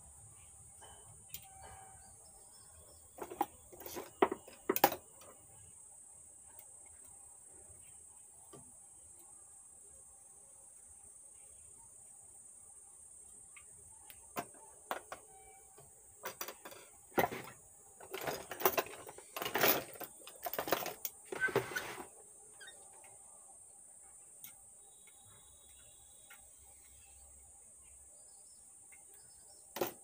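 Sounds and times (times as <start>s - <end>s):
small parts clattering and rustling: 3.0s - 5.6s, 14.3s - 22.7s, 29.7s - 30.0s
high insect chirring: 22.1s - 30.0s.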